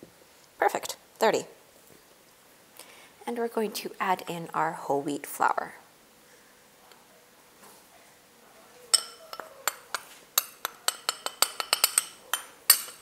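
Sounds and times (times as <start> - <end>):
metal spoon clinking on glass bowl: 8.9 - 13.0.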